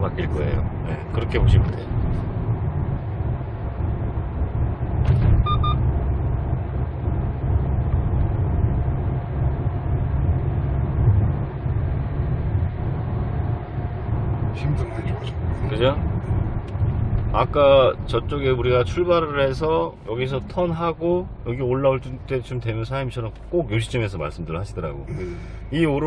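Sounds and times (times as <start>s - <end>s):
car engine and road rumble: 0.0s - 26.0s
double electronic beep: 5.4s - 5.8s.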